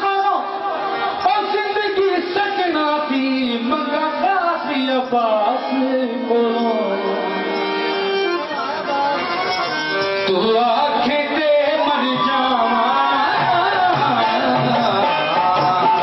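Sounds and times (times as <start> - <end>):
folk song music playing loudly: 0.0 - 16.0
steady musical accompaniment: 0.0 - 16.0
wavering melody instrument: 3.3 - 16.0.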